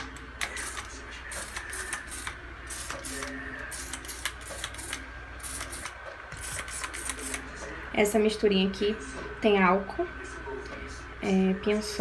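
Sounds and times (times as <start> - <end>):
spray bottle spraying: 0.4 - 7.4.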